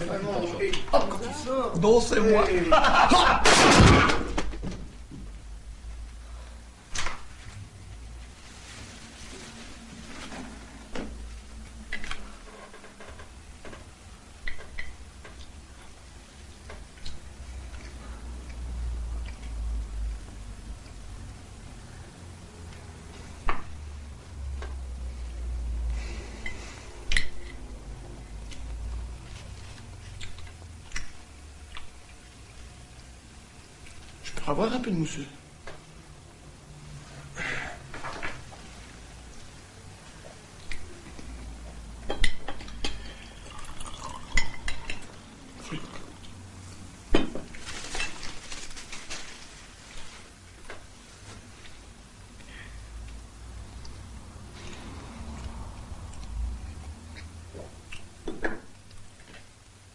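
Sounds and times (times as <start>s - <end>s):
low steady rumble: 0.0s - 47.1s, 48.8s - 59.9s
wine fizz hissing: 43.0s - 45.0s
wine pouring into a glass: 43.0s - 45.0s.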